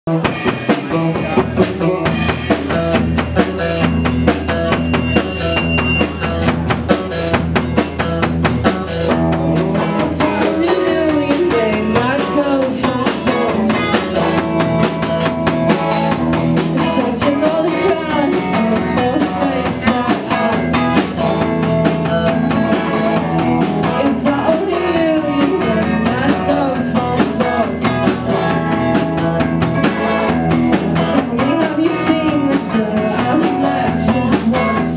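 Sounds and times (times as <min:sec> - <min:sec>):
live rock band playing: 0:00.1 - 0:34.9
girl singing lead vocal: 0:09.8 - 0:15.3, 0:16.6 - 0:22.1, 0:22.8 - 0:28.8, 0:30.9 - 0:34.9.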